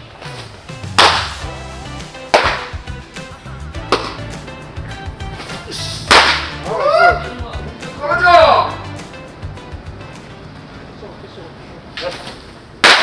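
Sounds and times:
baseballs smacking into mitts: 0.9 - 1.4, 2.3 - 2.8, 3.9 - 4.2, 6.1 - 6.6, 12.8 - 13.0.

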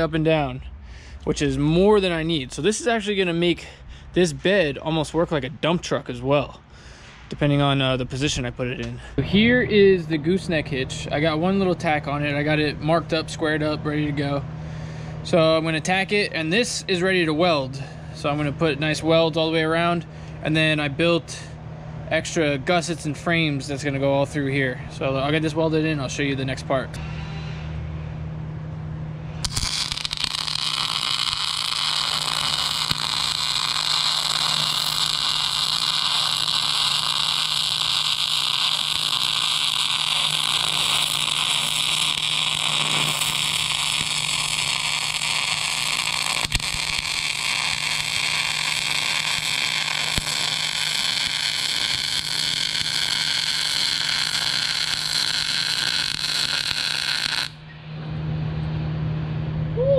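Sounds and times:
mig welder hissing: 29.4 - 57.6.

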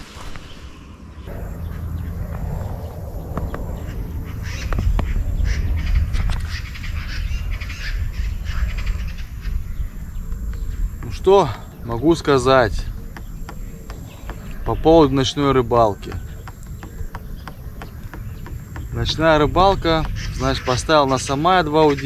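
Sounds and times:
birds calling: 0.3 - 22.0
low steady rumble: 1.2 - 22.0.

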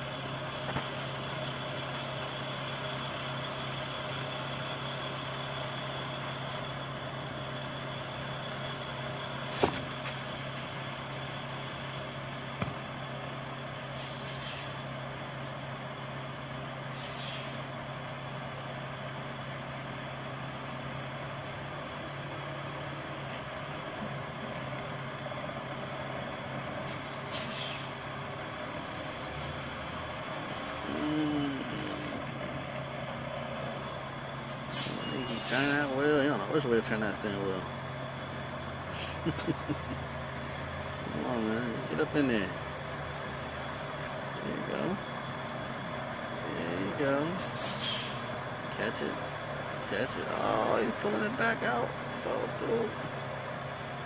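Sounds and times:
diesel truck engine idling: 0.0 - 54.0
air brake hisses: 13.8 - 14.9, 16.9 - 17.7, 26.8 - 28.0, 34.5 - 35.5, 47.4 - 48.3.

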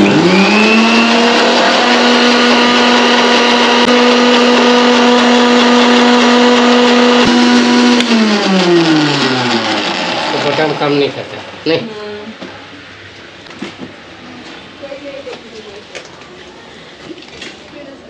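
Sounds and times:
mixer grinder motor whine: 0.0 - 12.0.

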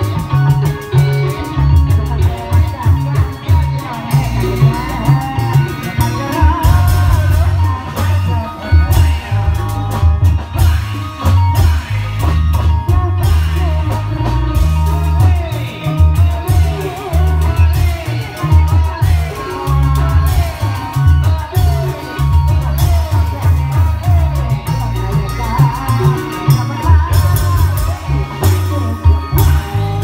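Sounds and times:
person singing: 0.0 - 30.0
pulsing drum and bass beat: 0.0 - 30.0
sharp percussion strikes: 0.0 - 30.0.

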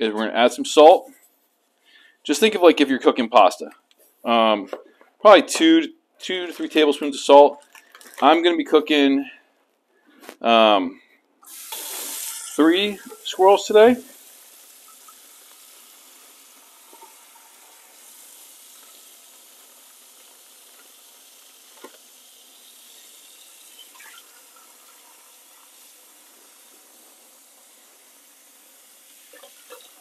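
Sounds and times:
faucet running into metal pot: 7.2 - 8.4, 11.4 - 30.0.

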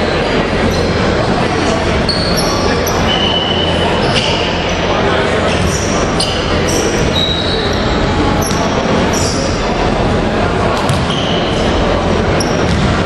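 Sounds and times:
gym hall noise with voices: 0.0 - 13.0
sneaker squeaks on court: 5.5 - 9.6, 10.8 - 11.8, 12.4 - 13.0.

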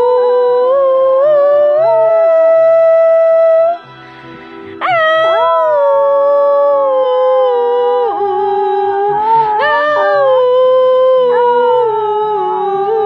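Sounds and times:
television theme music: 2.9 - 8.5
small dog howling: 4.8 - 13.0.

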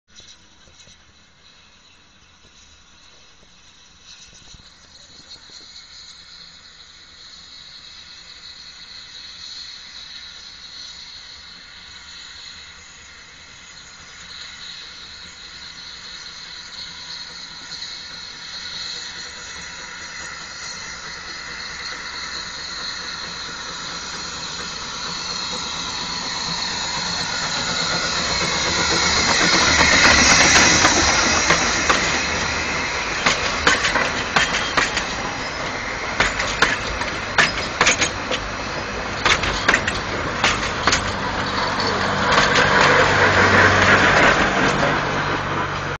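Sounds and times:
steam locomotive hissing steam: 0.1 - 46.0
wheels clicking over rail joints: 17.2 - 46.0.

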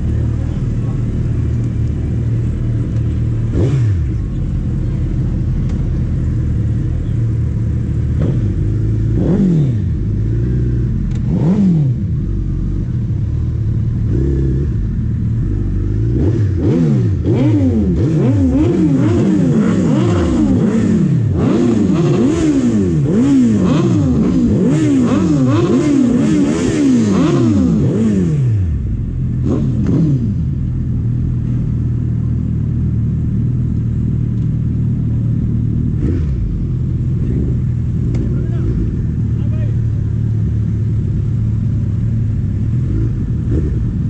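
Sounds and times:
motorcycle engines idling: 0.0 - 44.0
motorcycle engines revving: 0.0 - 44.0.

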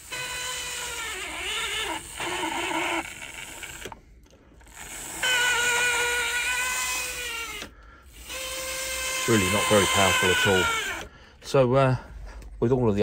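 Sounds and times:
model train motor whine: 0.0 - 4.0, 4.6 - 11.1.

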